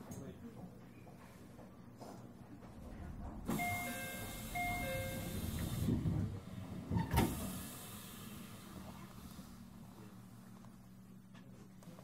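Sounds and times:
steady low hum: 2.2s - 7.0s
sliding doors closing: 2.7s - 9.0s
train door chime: 3.5s - 5.9s.

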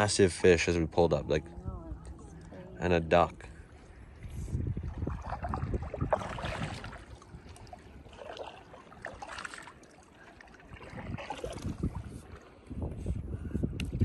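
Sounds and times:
water splashing and lapping: 0.0s - 14.0s
paddle strokes: 3.4s - 13.2s.

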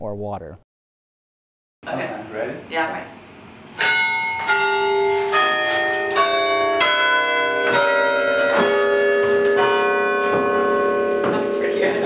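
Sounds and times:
church bells ringing: 3.8s - 12.0s.

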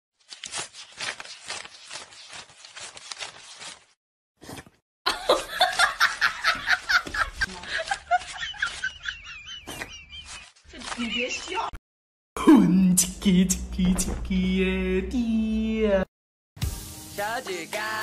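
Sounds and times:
loud rapid laughter: 5.1s - 11.6s.

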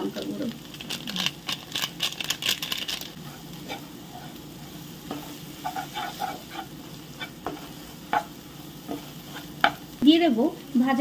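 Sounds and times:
paste sizzling in oil: 0.0s - 11.0s
wooden spatula scraping pan: 3.2s - 9.8s.

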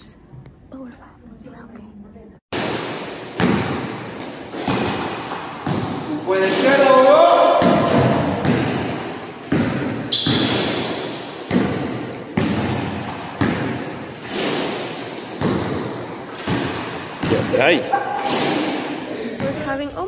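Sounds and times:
balls bouncing on hardwood floor: 2.6s - 6.8s, 7.4s - 17.7s
sneaker squeak: 10.0s - 11.2s, 17.7s - 19.8s.

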